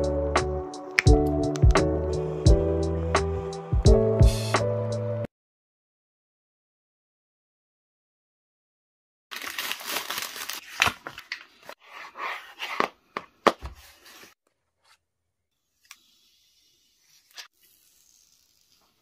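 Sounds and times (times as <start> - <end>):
packaging tearing and crinkling: 9.3 - 11.4.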